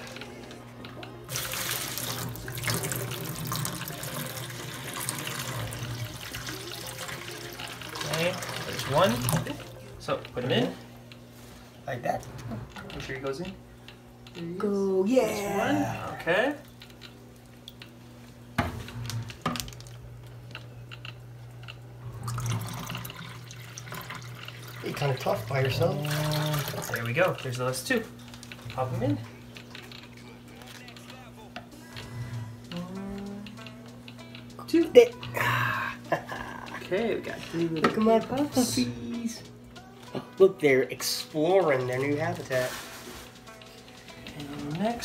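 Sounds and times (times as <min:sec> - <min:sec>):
water pouring into bowl: 0:01.3 - 0:09.6, 0:22.2 - 0:27.1
steady low hum: 0:09.2 - 0:45.0.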